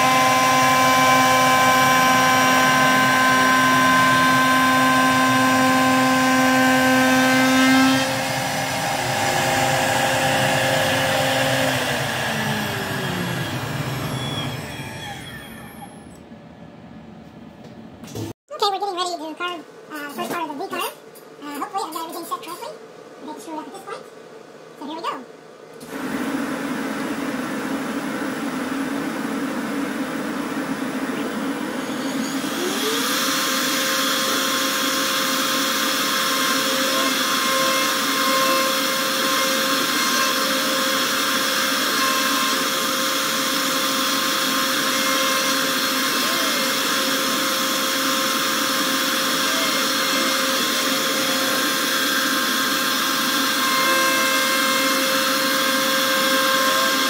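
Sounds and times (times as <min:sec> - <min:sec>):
router whine cutting wood: 0:00.0 - 0:16.1, 0:28.2 - 0:57.0.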